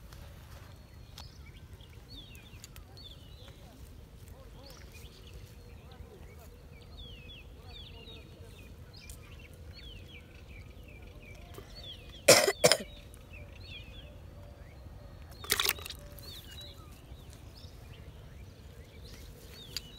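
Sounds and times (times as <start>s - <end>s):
small birds chirping: 0.1s - 19.9s.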